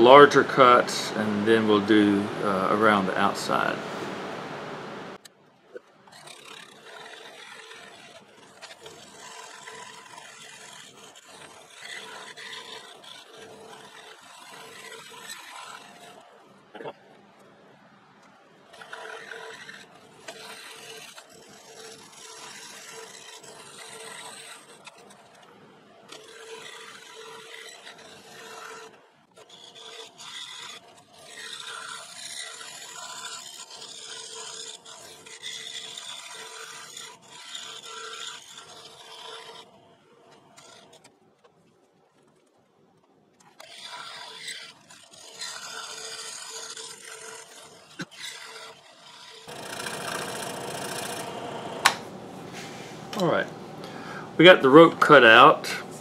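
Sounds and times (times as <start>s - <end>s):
motor hum: 0.0s - 5.3s, 49.5s - 56.0s
scroll saw rasping buzz: 6.0s - 16.4s, 18.7s - 41.1s, 43.4s - 52.3s.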